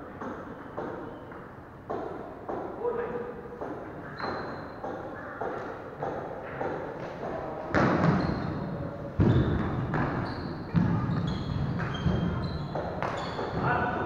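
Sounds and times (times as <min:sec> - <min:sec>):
shoe squeaks: 0:04.0 - 0:04.9, 0:08.0 - 0:14.0.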